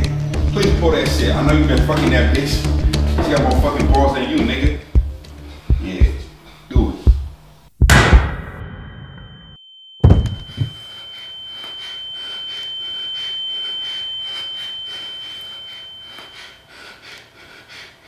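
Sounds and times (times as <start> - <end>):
gunshot-like bang: 7.9 - 9.0
high steady ringing tone: 8.7 - 17.3.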